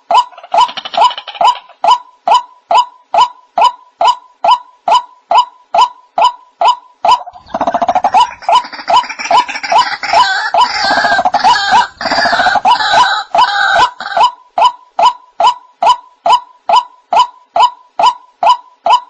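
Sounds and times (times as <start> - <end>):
waterhen calling: 5.8 - 19.0.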